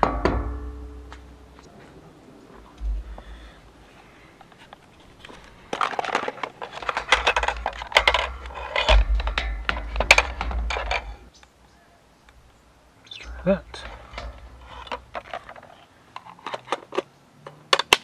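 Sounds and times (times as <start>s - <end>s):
low rumbling bumps: 0.0s - 5.9s, 6.8s - 11.4s, 12.3s - 15.4s.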